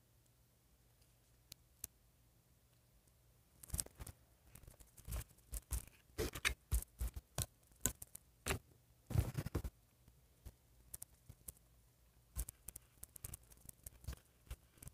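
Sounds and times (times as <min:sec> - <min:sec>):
plastic doll parts clicking: 0:03.6 - 0:08.6, 0:12.4 - 0:14.9.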